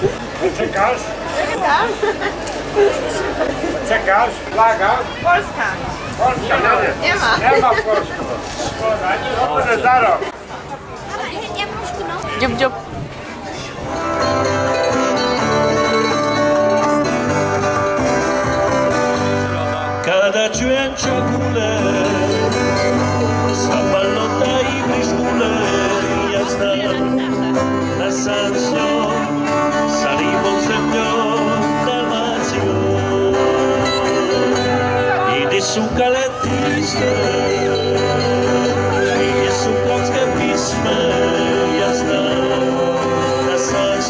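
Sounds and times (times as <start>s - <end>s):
plucked string music: 13.8s - 44.0s.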